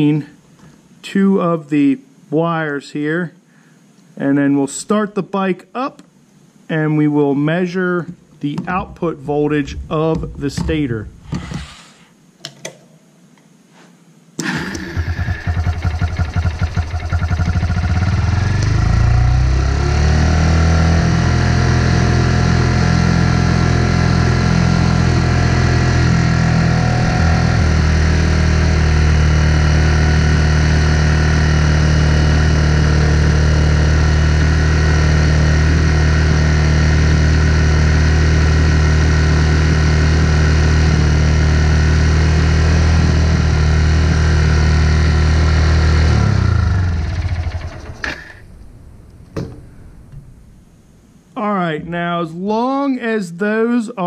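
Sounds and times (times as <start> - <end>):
motorcycle engine idling: 14.6 - 19.5, 46.2 - 50.5.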